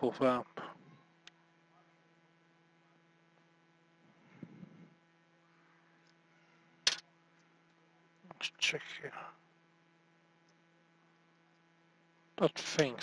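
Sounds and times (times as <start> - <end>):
faint electrical hum: 0.0 - 13.0.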